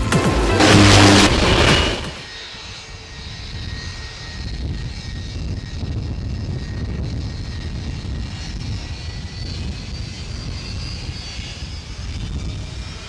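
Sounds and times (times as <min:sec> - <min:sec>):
music intro: 0:00.0 - 0:02.3
jet engines rumbling: 0:00.0 - 0:13.0.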